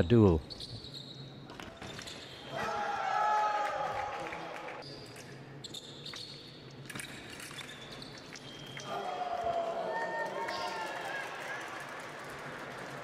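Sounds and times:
shoes squeaking: 0:00.5 - 0:02.5.

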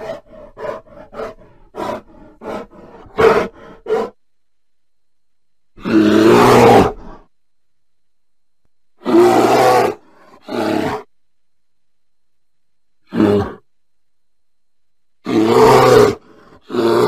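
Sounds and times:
bear grunting: 0:00.0 - 0:04.2, 0:15.2 - 0:17.0
bear roaring: 0:00.0 - 0:04.2, 0:05.8 - 0:07.3, 0:09.0 - 0:11.1, 0:13.0 - 0:13.7, 0:15.2 - 0:17.0.

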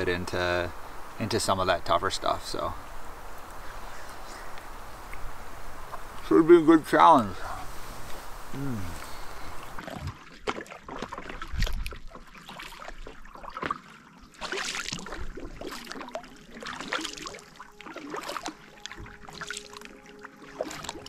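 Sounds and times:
paddle splashing water: 0:02.8 - 0:21.0.

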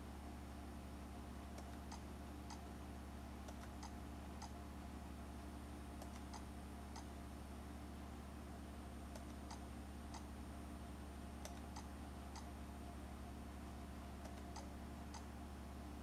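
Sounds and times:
steady low hum: 0:00.0 - 0:16.0
computer mouse clicking: 0:01.5 - 0:02.8, 0:03.4 - 0:04.6, 0:06.0 - 0:07.1, 0:09.1 - 0:10.3, 0:11.4 - 0:12.5, 0:14.2 - 0:15.3.

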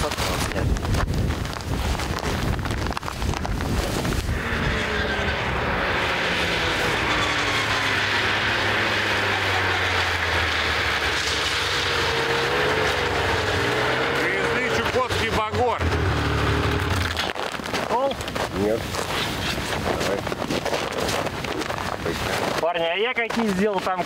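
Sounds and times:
wind buffeting microphone: 0:00.0 - 0:09.4, 0:15.8 - 0:23.6
snowmobile engine passing: 0:03.7 - 0:17.2.

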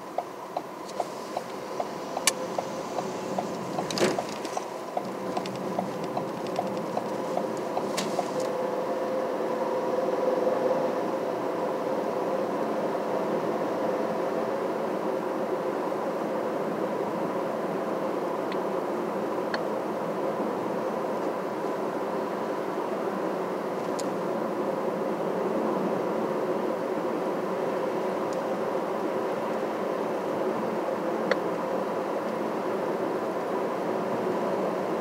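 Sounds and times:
car driving drone: 0:00.0 - 0:14.3, 0:16.2 - 0:35.0
faint clicks: 0:00.2 - 0:08.5.

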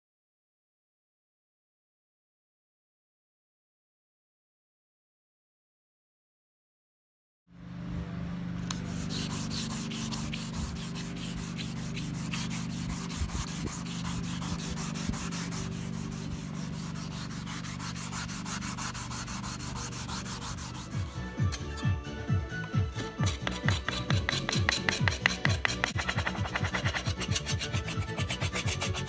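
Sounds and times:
sandpaper scratching on steel: 0:08.7 - 0:21.9, 0:23.0 - 0:29.0
music with steady beat: 0:20.7 - 0:29.0.

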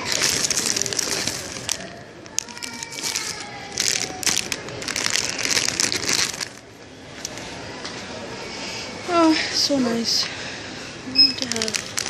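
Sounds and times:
plastic bags crinkling: 0:00.0 - 0:07.4, 0:11.4 - 0:12.0.

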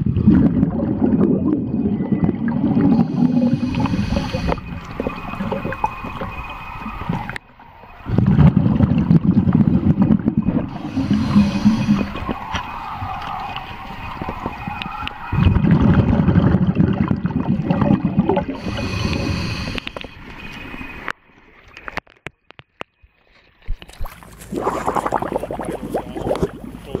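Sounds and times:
underwater bubbling: 0:00.0 - 0:21.9, 0:23.7 - 0:27.0
water sloshing and splashing: 0:00.0 - 0:27.0.

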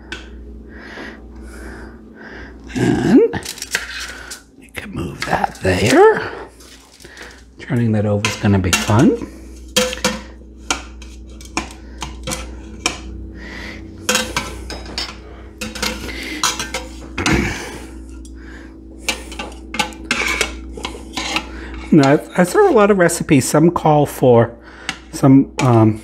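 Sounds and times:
steady low hum: 0:00.0 - 0:26.0
spatula clinking and scraping pot: 0:03.4 - 0:04.4, 0:08.1 - 0:13.2, 0:14.1 - 0:17.3, 0:19.0 - 0:22.9.

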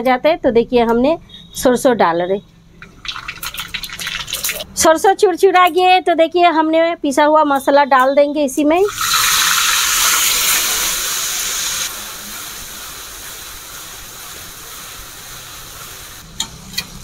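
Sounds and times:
paste sizzling in hot oil: 0:08.8 - 0:16.2.

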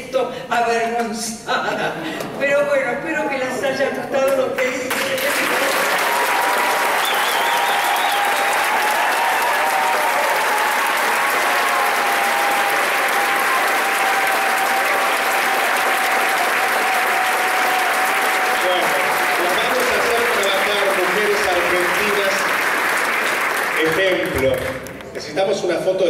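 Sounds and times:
audience applauding: 0:04.6 - 0:25.3.

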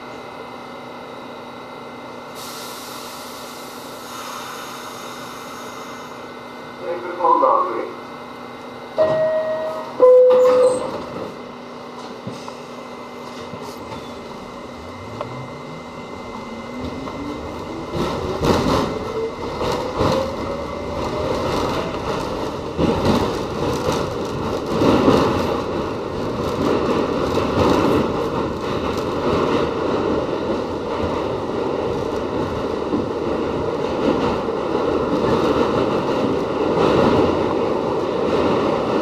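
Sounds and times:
wheel and track rumble: 0:00.0 - 0:39.0
two-tone door chime: 0:09.0 - 0:11.0
traction motors whining: 0:13.2 - 0:22.7.

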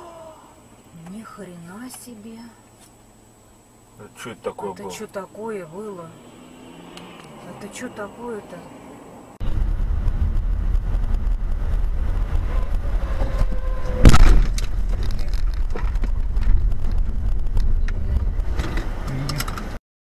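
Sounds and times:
car road and engine rumble: 0:00.0 - 0:19.8
loud thump: 0:09.4 - 0:17.8.

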